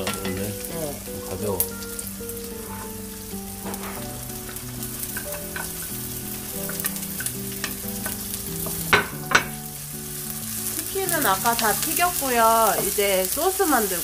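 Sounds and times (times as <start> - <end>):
vegetables sizzling in hot oil: 0.0 - 14.0
spatula stirring in wok: 2.4 - 9.0.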